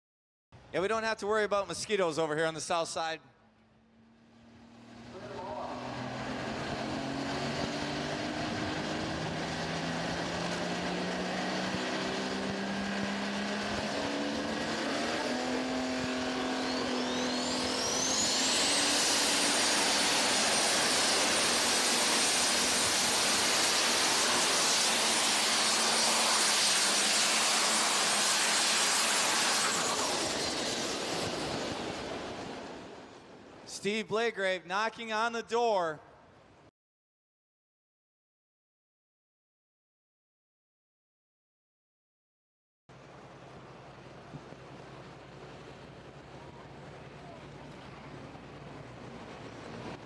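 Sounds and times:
turbo whine: 0:03.8 - 0:33.2
tractor diesel engine: 0:04.9 - 0:33.0.

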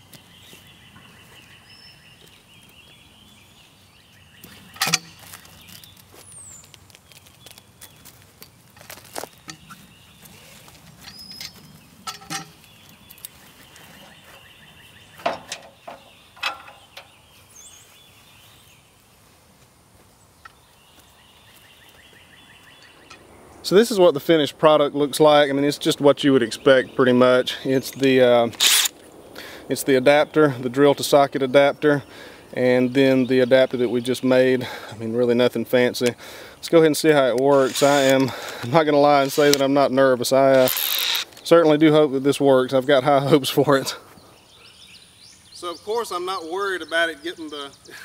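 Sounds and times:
birds chirping: 0:00.0 - 0:48.0
clanks on steel frame: 0:11.0 - 0:12.6, 0:15.2 - 0:17.1.

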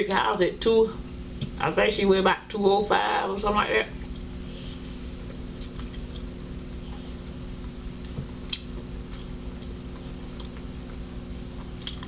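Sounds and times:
steady low hum: 0:00.0 - 0:12.0
person chewing food: 0:04.0 - 0:12.0.

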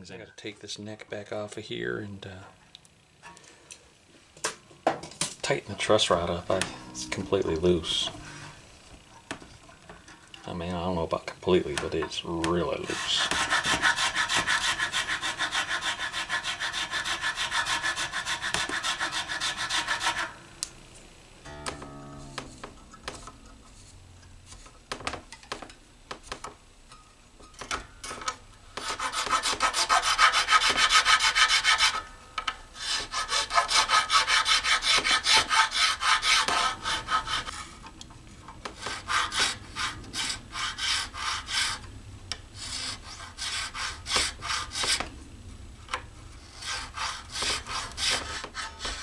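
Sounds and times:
file rasping in a nut slot: 0:12.9 - 0:20.3, 0:28.8 - 0:32.0, 0:32.8 - 0:37.6, 0:38.8 - 0:41.8.

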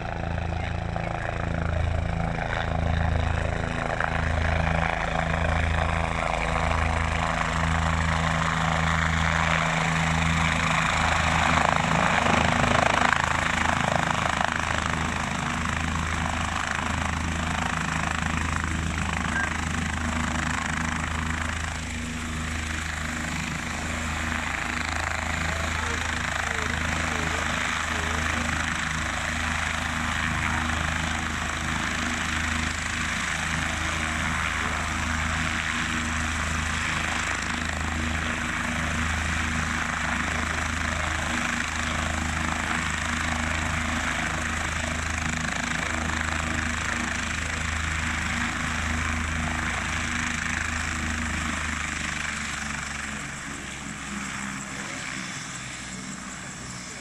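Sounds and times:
helicopter rotor beat: 0:00.0 - 0:57.0
helicopter turbine whine: 0:00.0 - 0:57.0.

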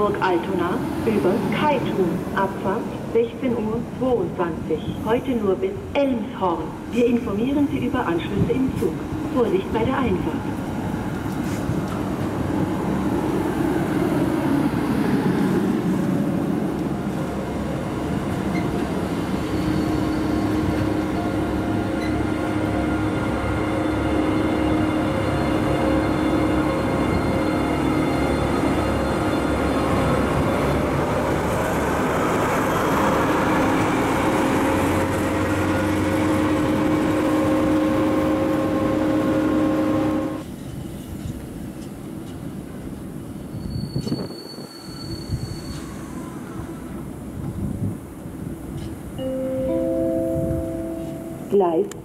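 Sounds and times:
diesel locomotive engines droning: 0:00.0 - 0:52.0
train wheels rumbling: 0:08.4 - 0:49.2.

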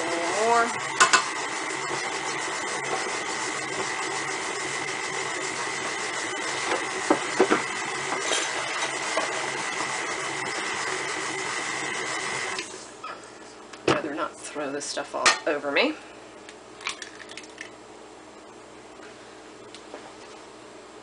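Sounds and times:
stand mixer running: 0:00.0 - 0:13.0.

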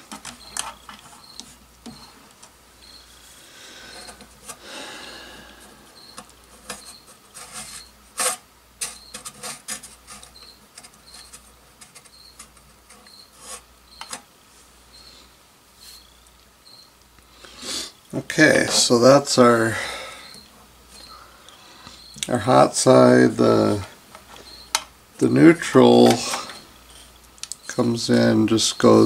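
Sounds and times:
hands clicking and tapping parts: 0:00.0 - 0:02.6, 0:05.6 - 0:13.2, 0:14.0 - 0:14.3, 0:23.8 - 0:24.9, 0:27.2 - 0:27.6.

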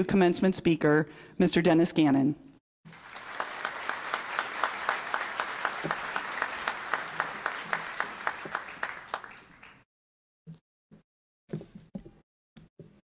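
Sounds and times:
audience applauding: 0:02.9 - 0:09.9.

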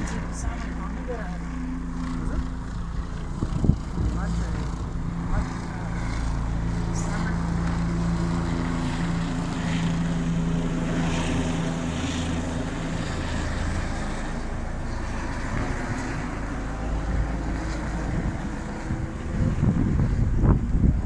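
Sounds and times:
helicopter engine and rotor drone: 0:00.0 - 0:21.0.

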